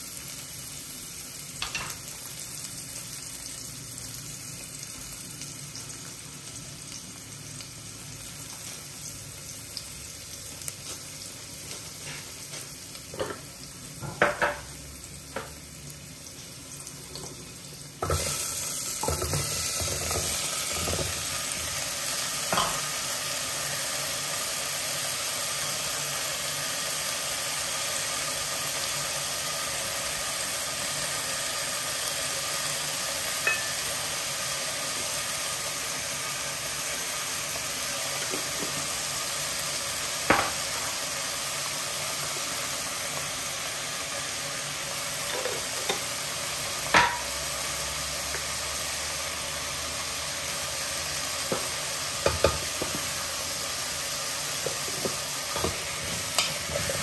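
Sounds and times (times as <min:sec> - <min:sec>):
vegetables sizzling in a pan: 0:00.0 - 0:57.0
kitchenware knocking on pan: 0:14.0 - 0:14.7, 0:40.3 - 0:40.6, 0:46.9 - 0:47.3.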